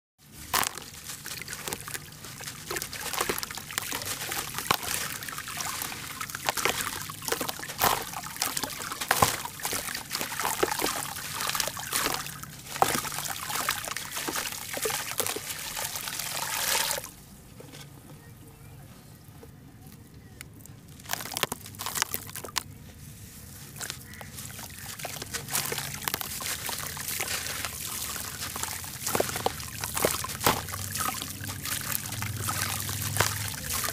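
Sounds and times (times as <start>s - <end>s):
ash crumbling and crunching: 0.3s - 15.2s, 21.0s - 22.7s, 23.7s - 33.9s
pieces splashing into water: 0.4s - 17.1s, 21.0s - 22.7s, 23.8s - 33.9s.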